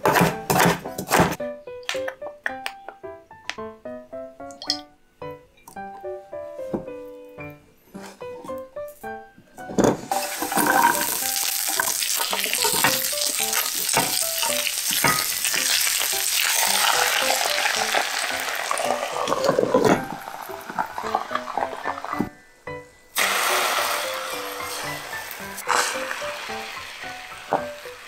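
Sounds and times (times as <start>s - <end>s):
oil sizzling in frying pan: 10.0s - 22.2s, 23.2s - 28.0s.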